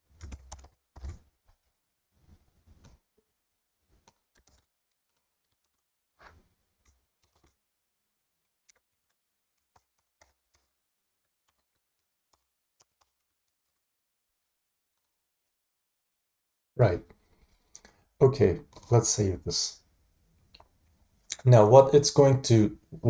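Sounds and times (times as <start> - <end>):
typing on computer keyboard: 0.1 - 1.3, 4.0 - 5.9, 6.8 - 7.6, 8.6 - 13.8.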